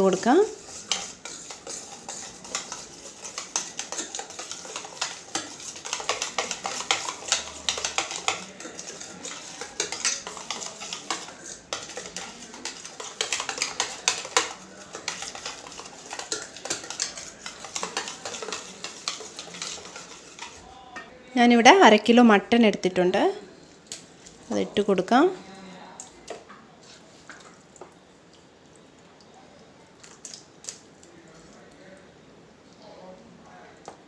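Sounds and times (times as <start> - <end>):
whisk clicking against metal bowl: 0.5 - 20.6
wet slapping of mixture: 0.6 - 20.6, 30.0 - 31.5.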